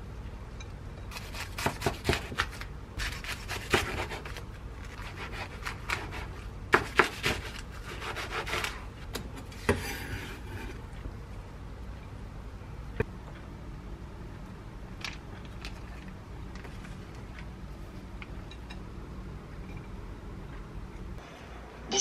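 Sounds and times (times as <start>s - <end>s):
knife scraping board: 9.6s - 10.8s.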